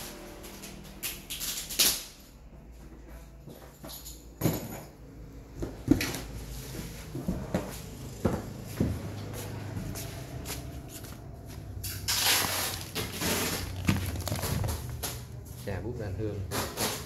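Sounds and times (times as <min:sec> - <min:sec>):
plastic bags rustling: 0:10.3 - 0:15.8.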